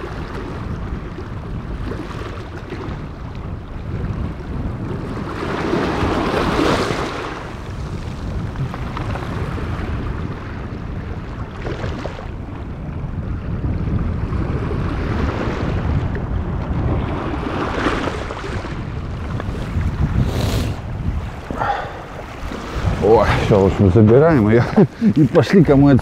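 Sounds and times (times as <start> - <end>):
wind buffeting microphone: 0.0 - 26.0
waves washing over pebbles: 5.0 - 10.6.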